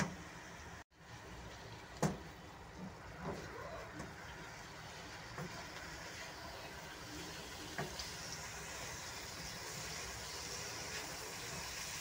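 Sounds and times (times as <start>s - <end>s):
food frying hiss: 3.4s - 12.0s.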